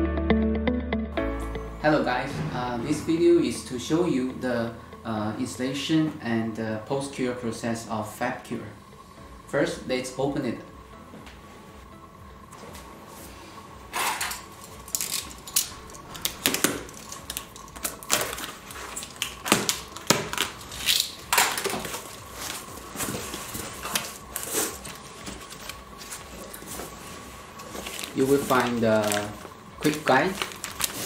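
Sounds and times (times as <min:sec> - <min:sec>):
blade slitting packing tape: 0:14.6 - 0:22.2, 0:27.9 - 0:31.0.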